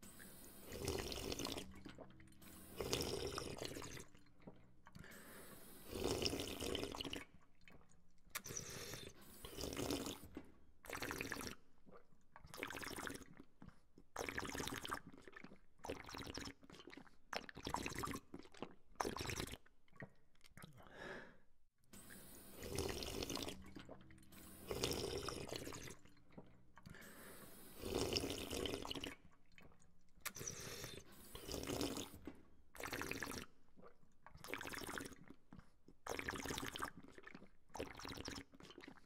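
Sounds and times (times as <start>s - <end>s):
person sipping water: 0.0s - 21.4s, 22.0s - 39.0s.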